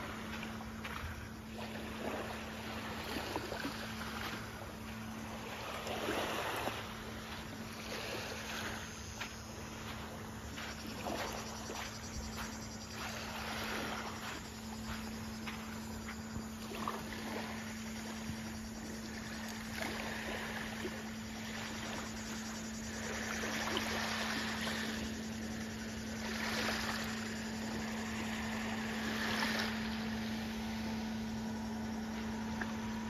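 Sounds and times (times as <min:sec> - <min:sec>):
waves lapping on pebbles: 0:00.0 - 0:33.0
low hum: 0:26.9 - 0:33.0.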